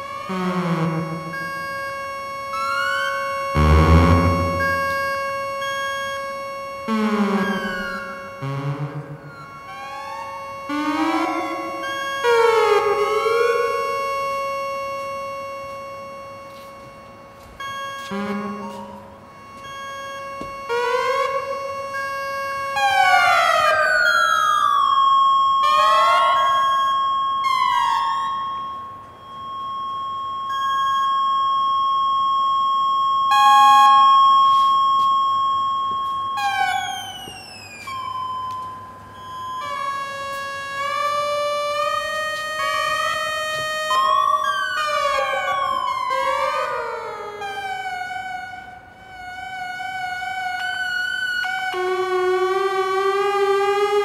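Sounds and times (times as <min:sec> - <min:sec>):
synthesizer pitch glides: 0:00.0 - 0:35.3, 0:39.2 - 0:49.5
synthesizer drone tone: 0:00.0 - 0:49.5
synthesizer tones: 0:02.6 - 0:05.8, 0:06.9 - 0:14.2.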